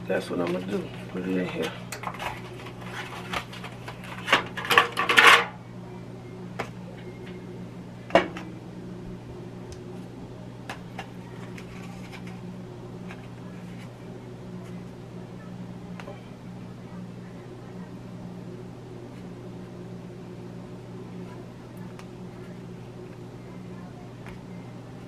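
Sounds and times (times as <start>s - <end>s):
steady low hum: 0.0s - 25.0s
foil pie tin crinkling: 0.2s - 5.6s, 10.7s - 14.0s.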